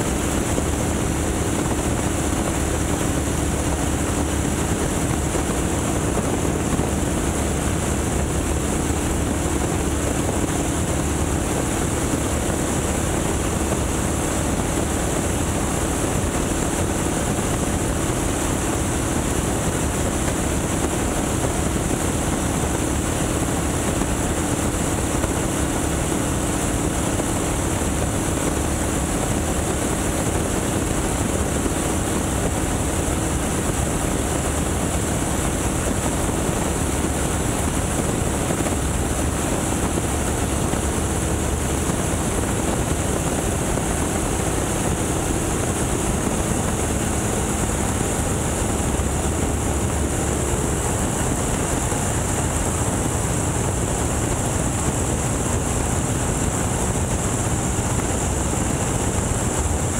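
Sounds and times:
airplane engine and propeller: 0:00.0 - 0:59.9.

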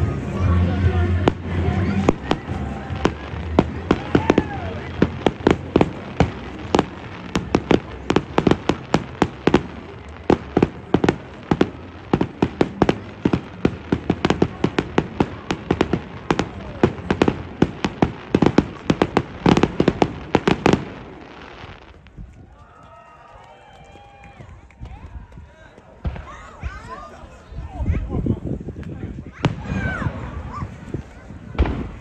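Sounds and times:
fireworks bangs: 0:00.0 - 0:22.4, 0:26.0 - 0:27.1, 0:29.1 - 0:32.0.

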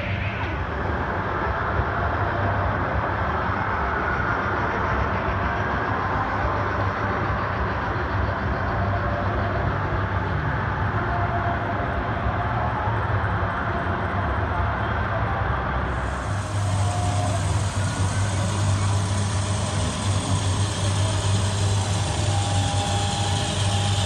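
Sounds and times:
model train wheels rolling on rails: 0:15.9 - 0:24.0.

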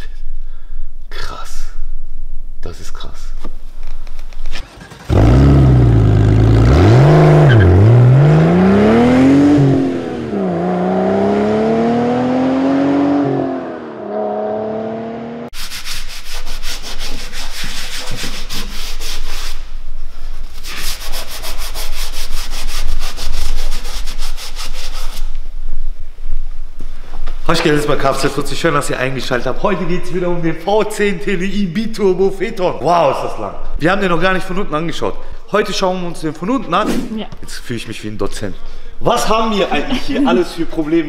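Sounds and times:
engine revving: 0:04.6 - 0:15.5
cloth rubbing on plastic: 0:20.4 - 0:25.4.

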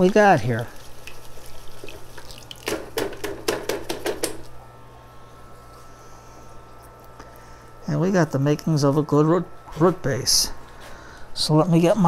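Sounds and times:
water splashing in a bucket: 0:00.1 - 0:03.4.

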